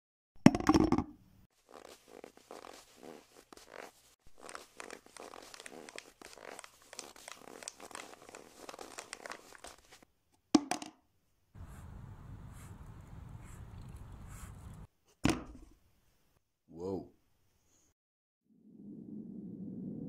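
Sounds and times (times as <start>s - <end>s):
plastic cup crunching over snow: 1.6s - 10.0s.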